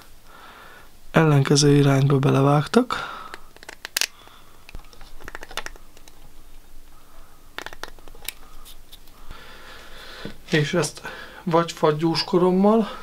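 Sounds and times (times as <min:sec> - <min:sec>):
sharp clicks of small objects: 0:03.2 - 0:06.2, 0:07.6 - 0:08.4.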